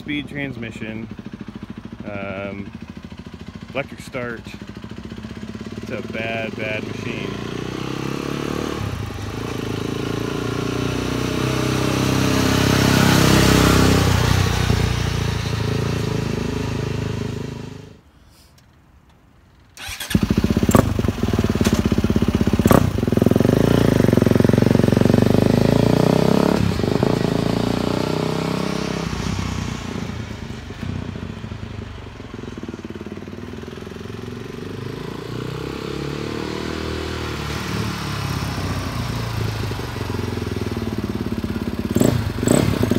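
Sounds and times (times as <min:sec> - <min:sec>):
dirt bike engine revving: 0:04.7 - 0:18.0, 0:19.8 - 0:30.3, 0:32.9 - 0:42.9
engine cracks: 0:18.6 - 0:22.1.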